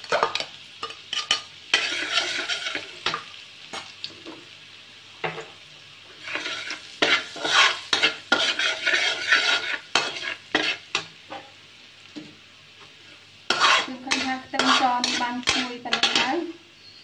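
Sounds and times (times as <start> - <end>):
garlic sizzling in hot oil: 0.0 - 17.0
metal ladle scraping wok: 1.1 - 3.2, 6.2 - 10.9, 13.5 - 16.4.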